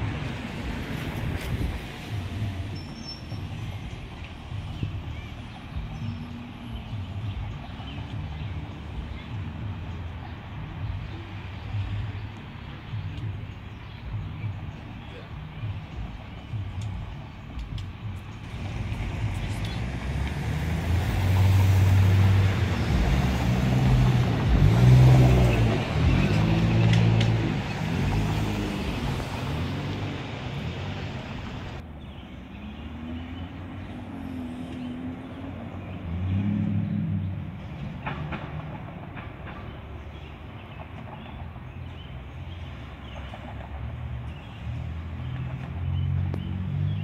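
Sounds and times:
street traffic: 0.0s - 47.0s
diesel bus driving past: 18.1s - 47.0s
trolley approaching on track: 18.3s - 31.8s, 37.5s - 46.2s.

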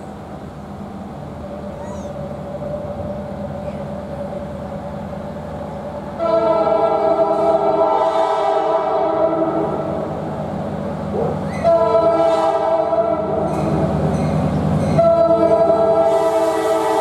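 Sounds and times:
diesel locomotive engine running: 0.0s - 17.0s
locomotive horn chord: 6.2s - 10.1s, 11.6s - 13.5s, 15.0s - 17.0s.

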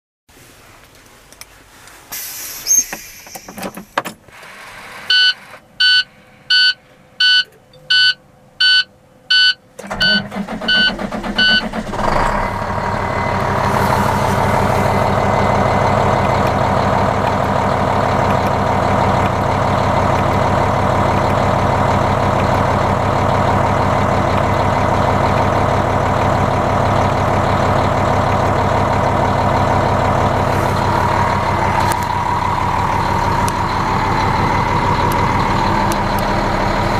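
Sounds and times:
diesel engine idling: 2.1s - 36.9s
dashboard warning chime beeping: 5.1s - 11.7s.

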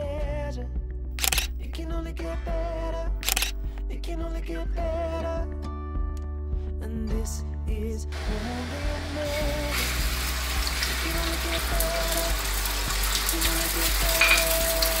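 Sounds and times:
soft background music: 0.0s - 15.0s
egg sizzling in a pan: 9.4s - 15.0s.

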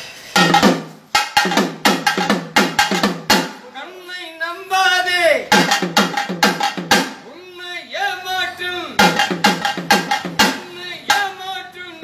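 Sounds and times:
hand drum struck with stick: 0.4s - 3.6s, 5.5s - 7.2s, 9.0s - 11.2s.

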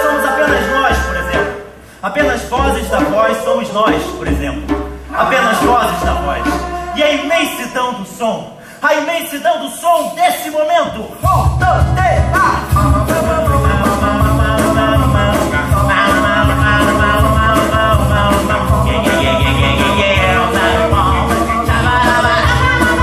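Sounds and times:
men singing: 0.0s - 1.6s, 5.1s - 7.8s, 12.6s - 23.0s
live band music: 0.0s - 8.6s, 11.1s - 23.0s.

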